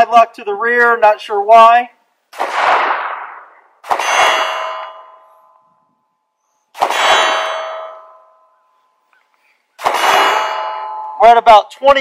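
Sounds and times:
pistol shots: 2.3 - 5.2, 6.7 - 8.1, 9.8 - 10.9
steel target ringing: 3.9 - 6.0, 6.8 - 8.7, 9.8 - 11.6.

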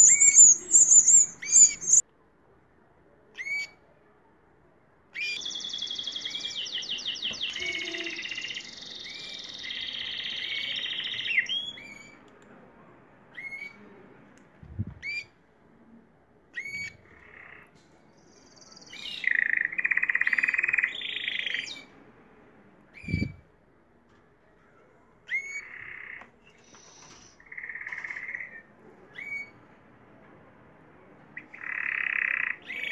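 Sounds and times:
canaries singing: 0.0 - 2.0, 5.2 - 12.2, 16.6 - 21.9, 25.3 - 29.6, 31.4 - 32.9.

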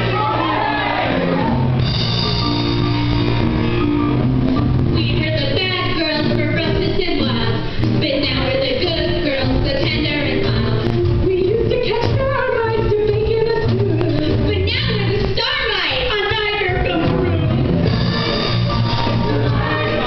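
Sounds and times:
band with steady drum beat: 0.0 - 6.4, 13.3 - 20.0.

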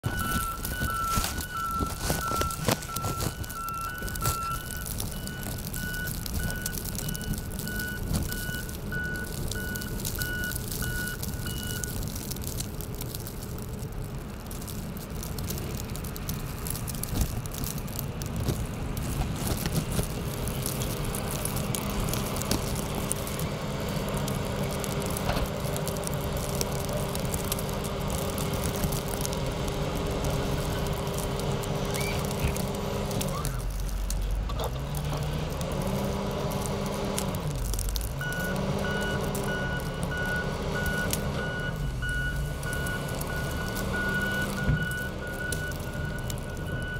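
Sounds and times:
backup alarm beeping: 0.0 - 11.9
diesel engine running: 0.0 - 46.9.

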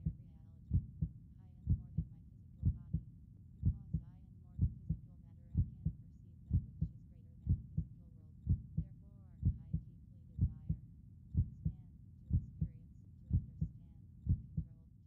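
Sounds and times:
heartbeat thumps: 0.0 - 14.7.

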